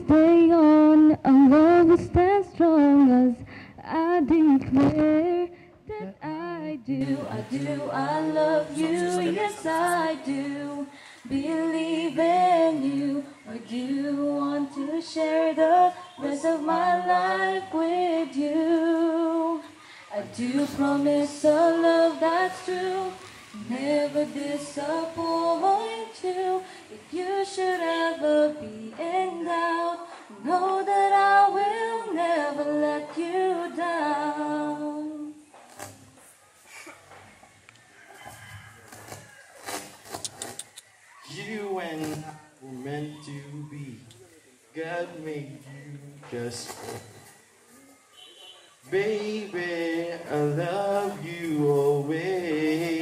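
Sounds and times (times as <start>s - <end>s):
man singing slow song: 7.0s - 15.3s, 41.2s - 44.2s, 44.8s - 47.3s, 48.8s - 53.0s.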